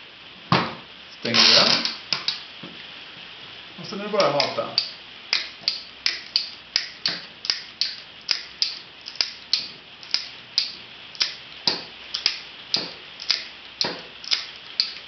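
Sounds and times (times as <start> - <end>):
wire rope cutter ratchet clicking: 4.2 - 11.4, 12.1 - 15.0.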